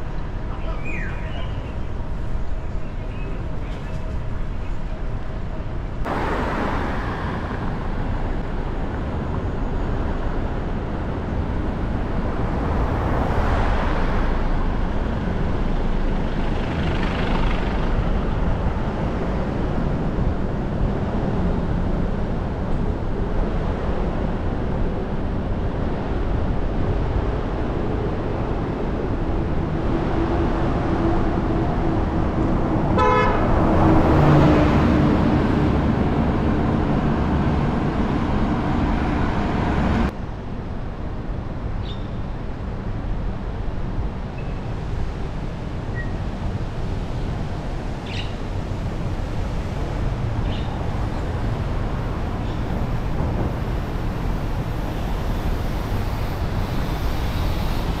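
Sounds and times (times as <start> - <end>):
traffic rumble: 0.0 - 58.0
vehicles passing: 0.0 - 58.0
car horn toot: 33.0 - 33.5.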